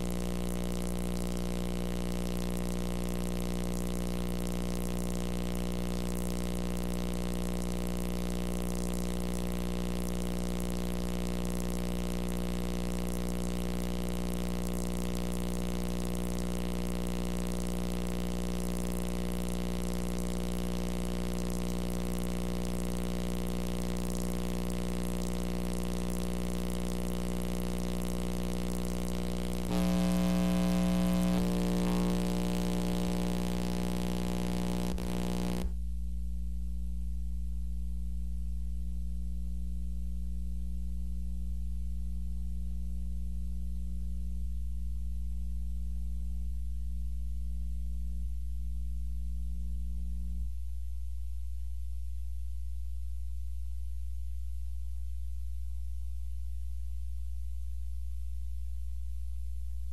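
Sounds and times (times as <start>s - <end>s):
electrical hum: 0.0s - 35.9s.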